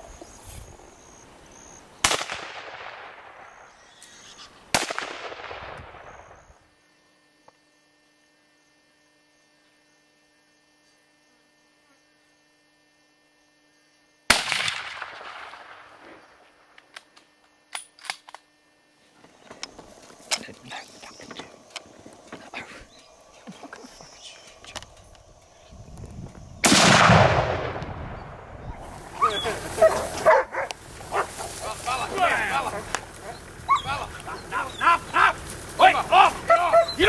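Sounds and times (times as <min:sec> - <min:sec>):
gunshots echoing: 0:02.0 - 0:03.7, 0:04.7 - 0:06.4, 0:14.3 - 0:16.1, 0:26.6 - 0:28.6
faint clicks: 0:23.8 - 0:26.2.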